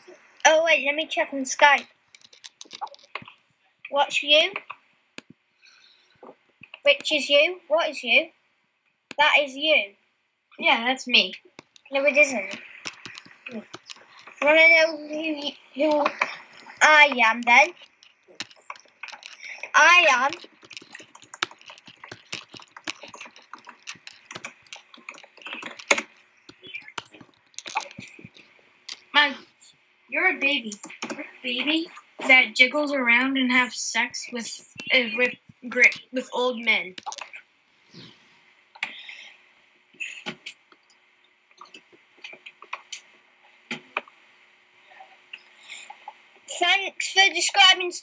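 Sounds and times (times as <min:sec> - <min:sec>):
light clicks and taps: 0:00.0 - 0:03.4, 0:11.6 - 0:29.6, 0:34.2 - 0:38.2
computer keyboard key clicks: 0:12.5 - 0:14.5.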